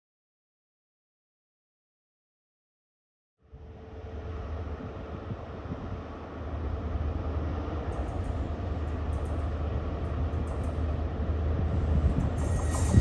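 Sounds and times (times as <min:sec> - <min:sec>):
train low rumble: 0:03.4 - 0:13.0.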